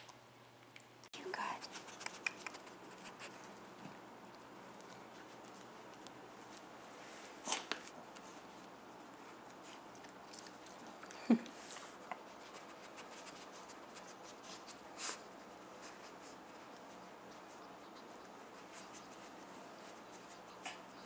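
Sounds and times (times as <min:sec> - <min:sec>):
dog sniffing: 0:01.6 - 0:03.6, 0:11.6 - 0:21.0
light scratching on carpet: 0:11.6 - 0:20.8.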